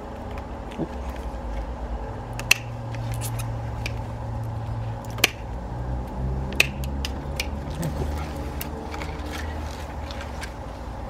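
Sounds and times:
shear blades clicking: 2.4s - 4.0s, 5.0s - 5.5s, 6.5s - 9.4s
pruning shears cutting branches: 6.5s - 10.6s.

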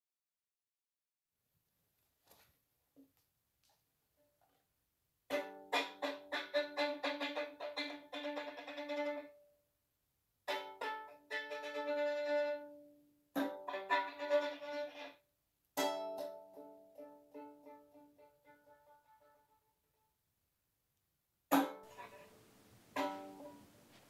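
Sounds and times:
string instrument tune: 5.3s - 9.5s, 10.5s - 15.2s, 15.8s - 19.7s, 21.5s - 24.0s.

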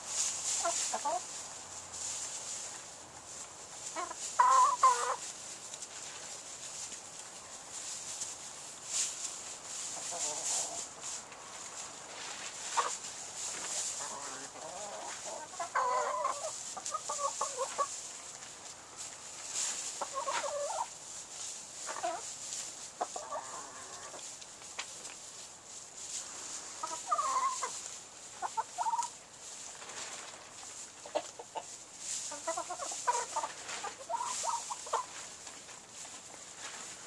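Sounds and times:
hens clucking: 0.0s - 37.0s.

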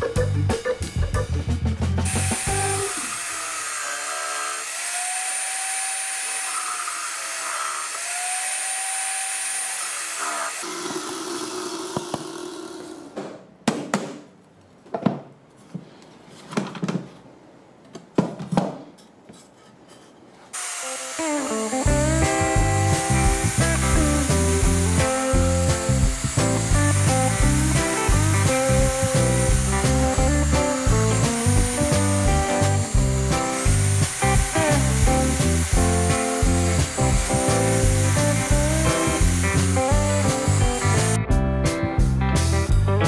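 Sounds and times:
drill press boring into wood: 2.1s - 12.4s, 20.6s - 41.2s.

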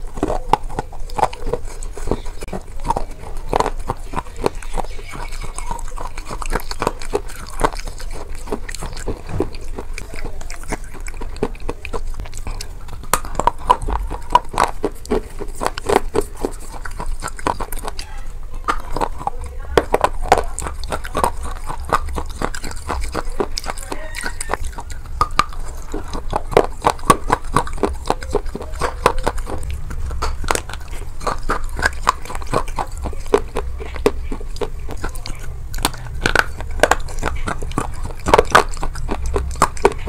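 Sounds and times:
crunchy food chewing: 0.0s - 40.0s
wet mouth clicks: 0.0s - 40.0s
steady low rumble: 24.6s - 40.0s.

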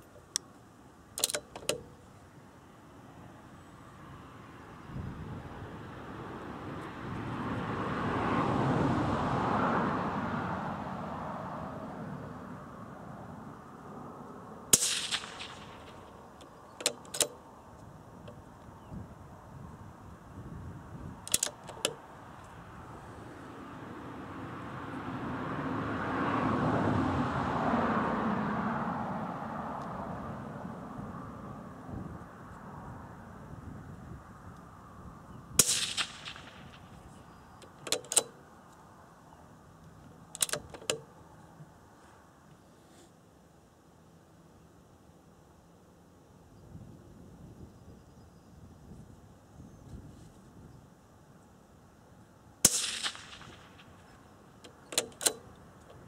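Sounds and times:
rifle bolt clicks: 1.2s - 1.9s, 14.8s - 17.4s, 21.3s - 22.0s, 37.6s - 38.4s, 40.3s - 41.1s, 54.6s - 56.0s
rifle shot crack: 14.7s - 16.2s, 35.6s - 37.0s, 52.6s - 54.1s.

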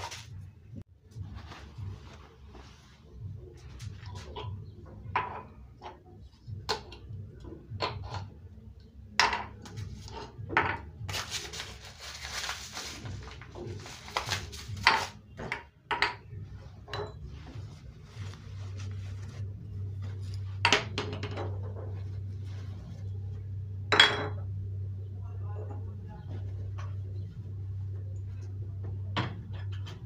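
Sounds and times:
dishes and cutlery clinking: 14.8s - 17.6s, 23.9s - 24.5s
steady low hum: 16.4s - 30.0s.

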